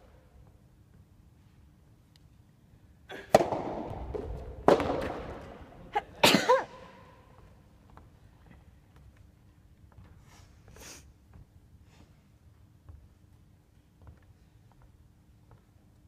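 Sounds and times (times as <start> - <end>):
racket hitting rubber ball: 3.1 - 5.7.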